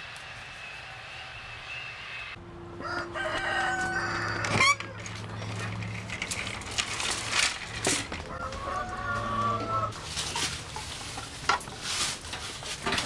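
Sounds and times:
rooster crowing: 2.8s - 5.1s, 8.3s - 10.0s
footsteps in dry leaves: 5.1s - 13.0s
chickens clucking: 8.2s - 13.0s.

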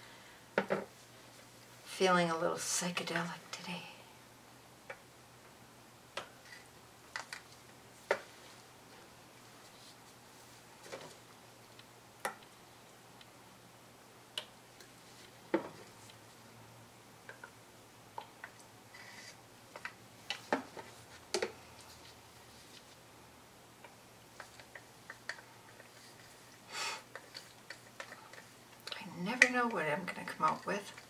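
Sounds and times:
plastic cups and sticks clicking: 23.8s - 26.0s, 27.1s - 29.6s.

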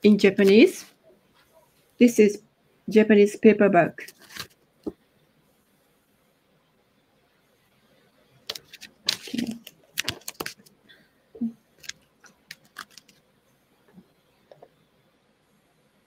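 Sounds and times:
book pages turning: 0.2s - 0.9s, 4.0s - 4.6s, 8.5s - 10.8s, 11.8s - 13.2s.

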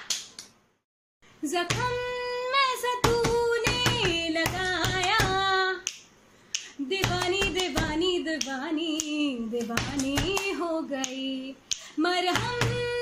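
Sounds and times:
sharp hand claps: 0.0s - 0.6s, 3.0s - 12.8s
woman singing: 1.4s - 5.9s, 6.6s - 13.0s.

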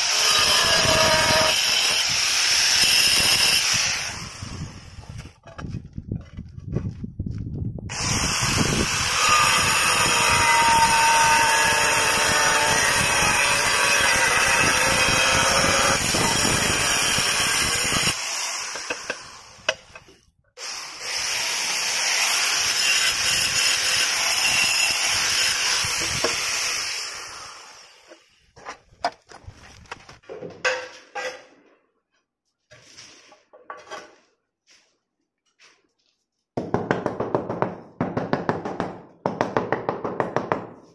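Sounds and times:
angle grinder cutting tile: 0.0s - 4.3s, 7.9s - 19.5s, 20.9s - 28.3s.

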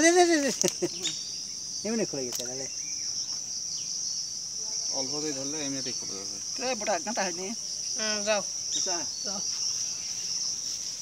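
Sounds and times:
insects droning: 0.0s - 11.0s
people talking: 5.0s - 9.4s.

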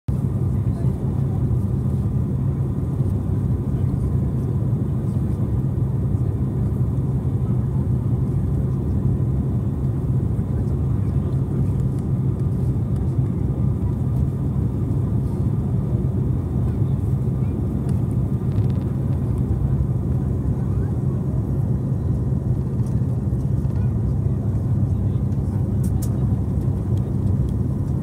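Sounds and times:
airliner cabin rumble: 0.1s - 28.0s.

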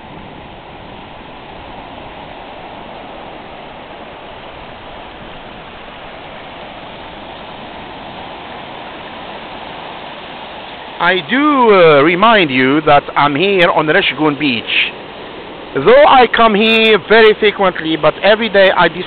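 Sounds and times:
waves breaking on beach: 0.0s - 19.0s.

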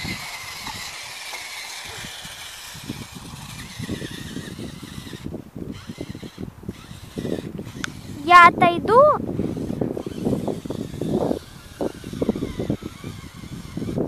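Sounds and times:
tyres crunching on gravel: 0.0s - 5.0s
small electric motor whining: 0.0s - 14.0s.

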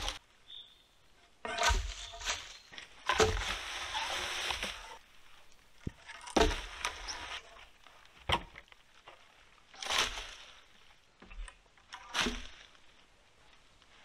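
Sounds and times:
wooden poles knocking: 1.5s - 3.7s, 5.8s - 7.2s.

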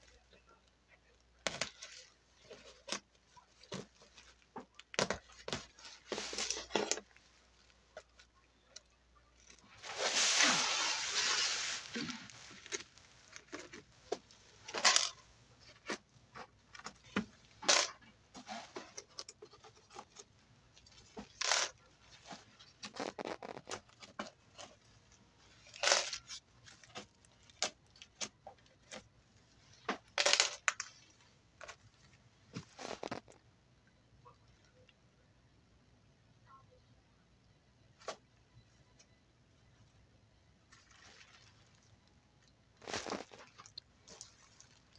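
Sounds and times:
plastic sheeting rustling: 9.6s - 15.0s, 42.8s - 44.8s.

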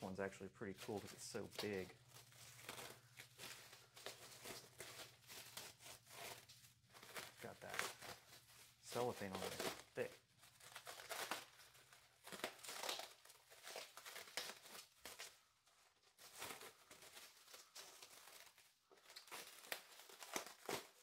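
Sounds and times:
cellophane wrap crinkling: 0.0s - 21.0s.

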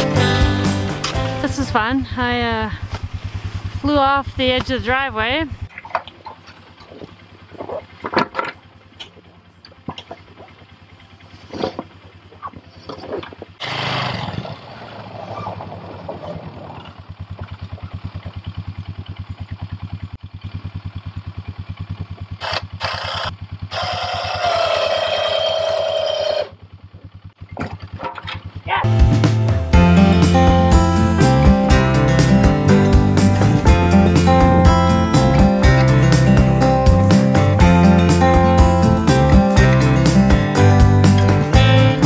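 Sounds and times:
engine idling: 0.0s - 14.3s, 16.5s - 42.0s
knocks and clanks of plow blade: 5.7s - 13.6s, 27.4s - 28.6s.

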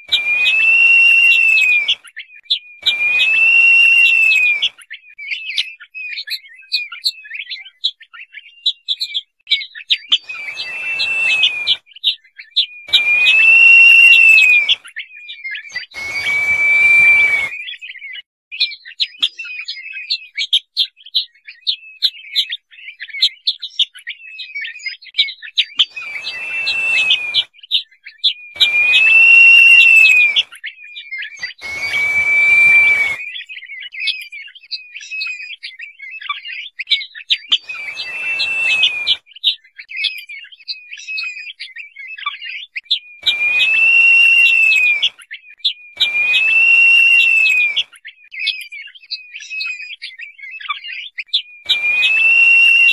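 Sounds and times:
bird whistled rising falling call: 0.0s - 6.8s, 10.1s - 11.8s, 12.9s - 14.9s, 15.6s - 18.0s, 25.8s - 30.5s, 31.3s - 34.1s, 37.5s - 39.2s, 43.2s - 45.2s, 46.0s - 47.9s, 51.7s - 52.9s
short high chirps: 25.9s - 27.4s, 37.6s - 39.2s.

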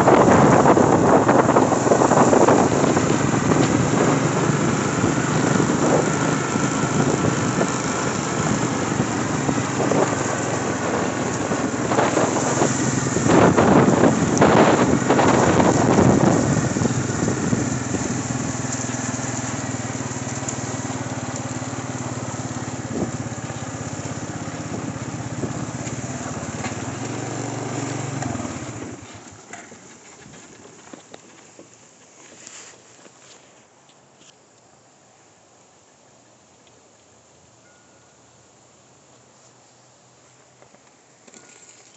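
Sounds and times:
quad bike engine running: 0.0s - 31.0s.

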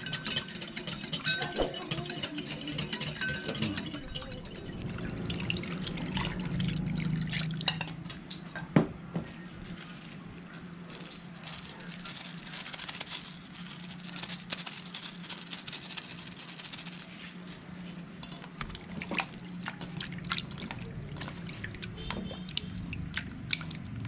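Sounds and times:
low hum: 3.8s - 7.8s
liquid bubbling and popping: 18.2s - 24.0s.

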